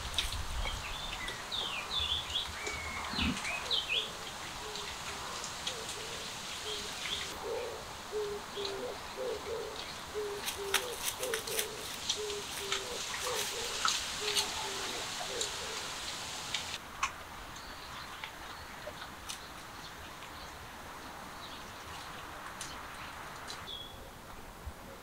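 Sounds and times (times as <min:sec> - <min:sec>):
small birds chirping: 0:00.3 - 0:16.8
low repeated bird call: 0:01.0 - 0:16.8.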